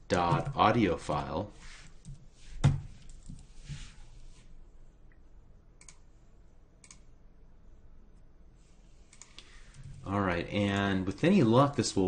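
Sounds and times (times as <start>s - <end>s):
clicks: 9.1s - 9.5s.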